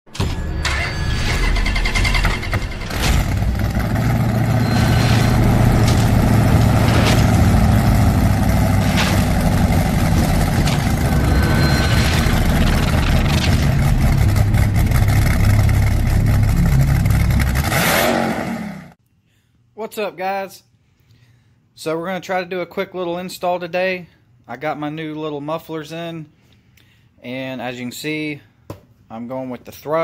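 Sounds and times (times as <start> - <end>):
vehicle engine rumbling: 0.3 - 18.1.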